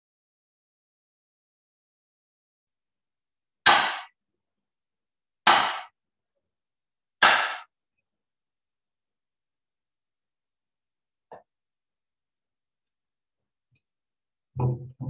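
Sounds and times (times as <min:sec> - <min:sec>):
bamboo stick strikes: 0:03.6 - 0:04.2, 0:05.4 - 0:06.0, 0:07.2 - 0:07.7.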